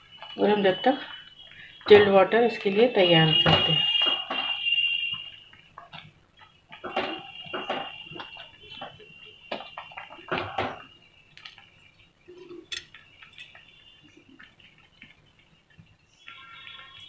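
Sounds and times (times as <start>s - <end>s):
metal utensils and dishes clattering: 12.4s - 13.6s.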